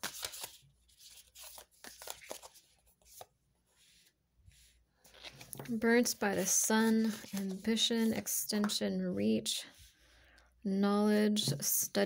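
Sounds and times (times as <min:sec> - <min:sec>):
cards shuffling: 0:00.0 - 0:03.3.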